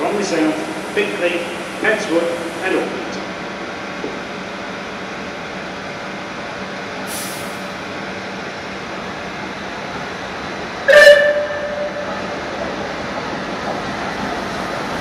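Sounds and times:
steam locomotive hiss: 0.0 - 3.4, 7.0 - 7.8
steam whistle blast: 10.9 - 12.1.

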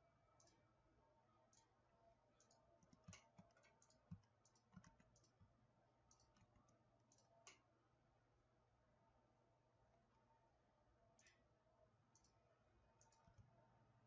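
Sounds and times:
computer mouse clicks: 0.4 - 0.6, 1.5 - 1.7, 2.4 - 7.7, 12.1 - 12.4, 13.0 - 13.6.

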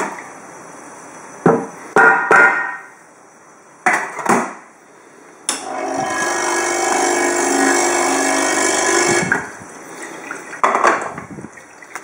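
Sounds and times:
sharp metallic knocks: 1.5 - 2.9
espresso machine pump humming: 5.6 - 9.5.

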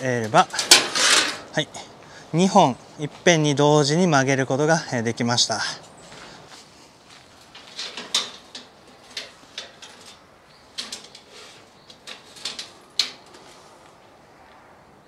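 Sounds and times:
steel pipes knocking together: 0.0 - 1.5.

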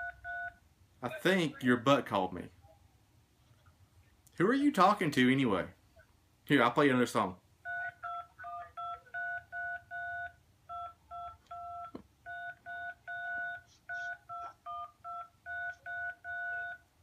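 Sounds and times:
keypad touch-tone beeps: 7.7 - 16.8.

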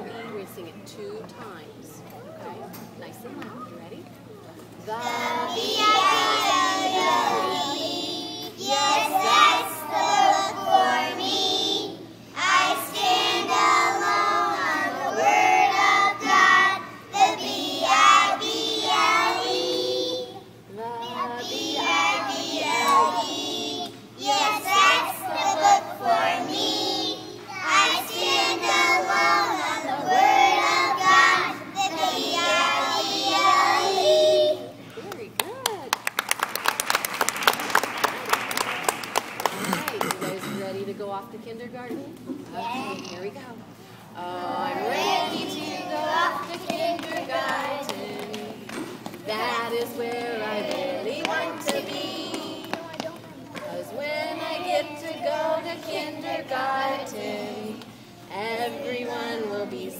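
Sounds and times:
children singing together: 4.9 - 34.8, 44.2 - 59.9.

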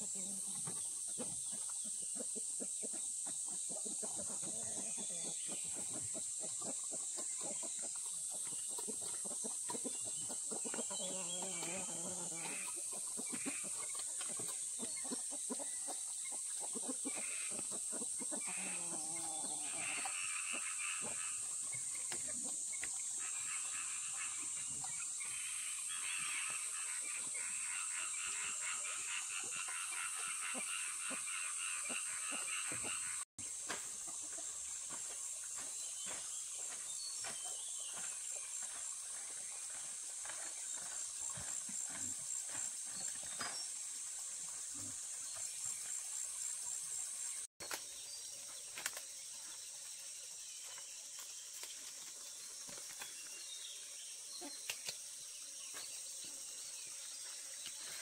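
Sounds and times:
chickens clucking: 0.0 - 43.5.

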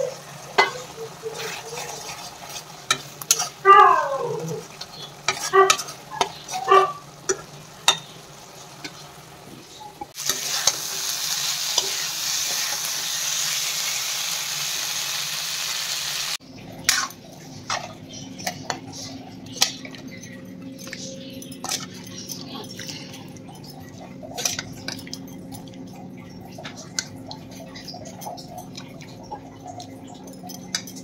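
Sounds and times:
vegetables sizzling: 0.0 - 19.9
metal spatula scraping in pan: 0.4 - 3.6, 4.4 - 9.1, 10.1 - 13.4, 16.8 - 19.8.

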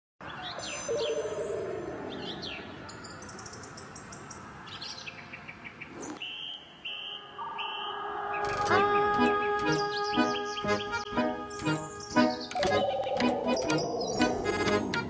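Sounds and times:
birds chirping and singing: 0.3 - 15.0
lower falling bird tone: 6.2 - 15.0
steady high bird notes: 6.3 - 15.0.

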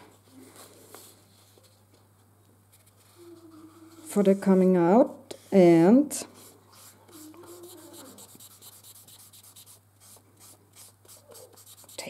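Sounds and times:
marker scratching on paper: 6.4 - 12.0.

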